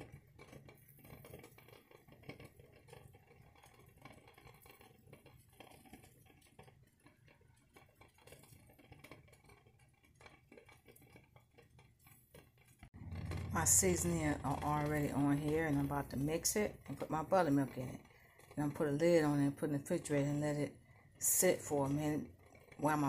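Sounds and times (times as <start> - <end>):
faint low hum: 13.0 - 23.0.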